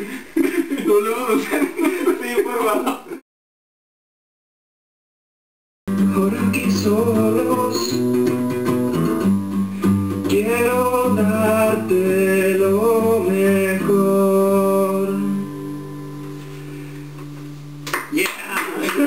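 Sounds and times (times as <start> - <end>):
man singing: 5.9 - 9.4, 10.2 - 15.5
classical guitar strumming chords: 5.9 - 18.1.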